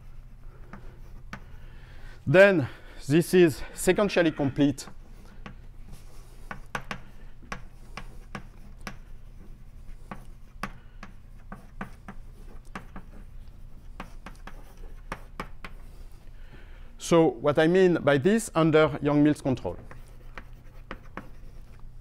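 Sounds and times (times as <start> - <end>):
chalk tapping and scratching: 0.0 - 1.8, 4.4 - 16.3, 19.5 - 22.0
low room hum: 0.0 - 22.0.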